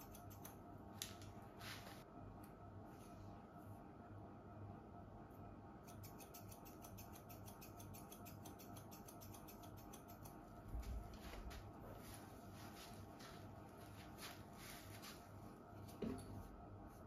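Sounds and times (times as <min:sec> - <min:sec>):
scissors snipping hair: 0:00.0 - 0:01.3, 0:05.8 - 0:11.0.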